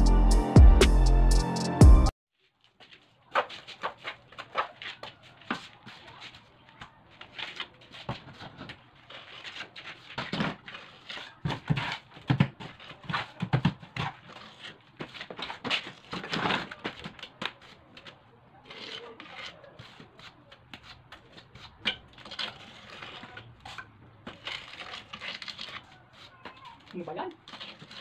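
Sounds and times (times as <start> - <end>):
hand tool scraping concrete: 7.2 - 28.0.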